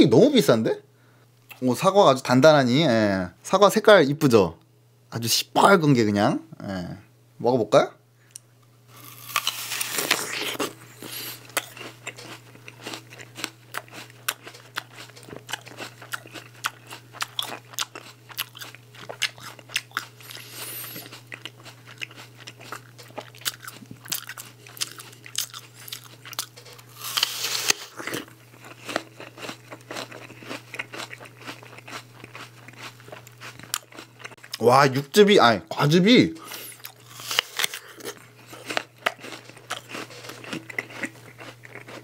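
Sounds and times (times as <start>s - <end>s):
crunchy chewing: 8.9s - 34.6s, 36.4s - 42.0s
crisp bite into apple: 9.0s - 18.0s, 23.5s - 33.9s, 36.6s - 42.0s.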